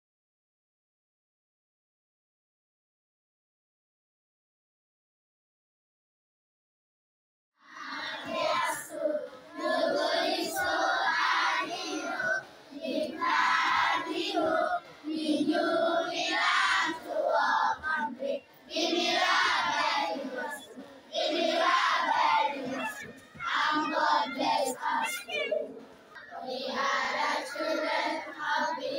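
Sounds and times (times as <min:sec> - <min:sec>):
children singing in unison: 0:07.6 - 0:28.9.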